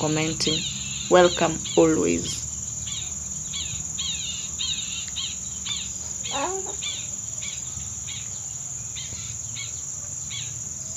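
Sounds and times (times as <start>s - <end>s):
bird chirping: 0.0s - 10.9s
insects trilling: 0.0s - 10.9s.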